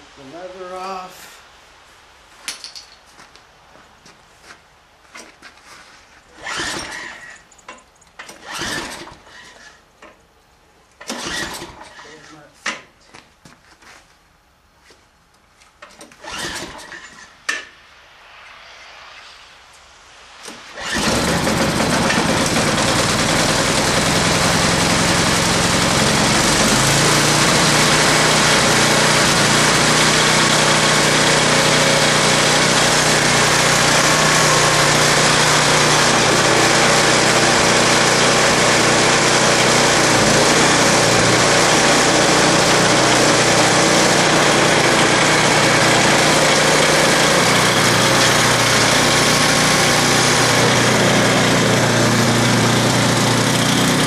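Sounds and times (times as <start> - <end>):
recoil starter pull: 6.4 - 7.4, 8.2 - 9.8, 11.0 - 12.2, 15.9 - 17.2, 20.8 - 54.0
snowblower engine running: 20.8 - 54.0.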